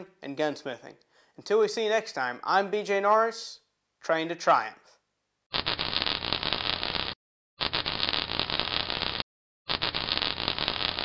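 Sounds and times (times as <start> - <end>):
crackling noise bursts: 5.5 - 11.0.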